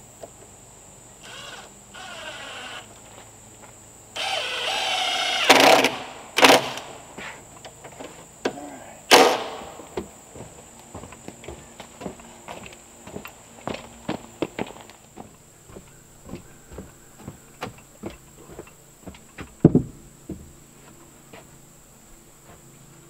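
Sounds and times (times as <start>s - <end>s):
power drill running: 1.2s - 2.9s, 4.2s - 6.9s
knocks on wood: 15.7s - 20.5s.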